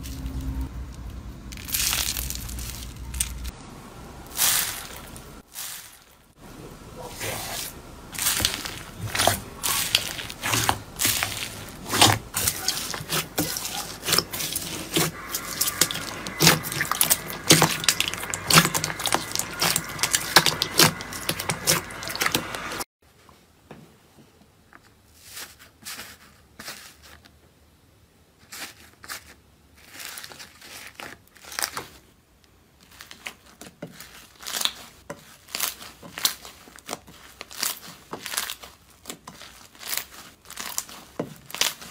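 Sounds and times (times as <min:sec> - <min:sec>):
slime crackling and popping: 0:01.0 - 0:03.5, 0:08.1 - 0:22.8, 0:32.9 - 0:41.9.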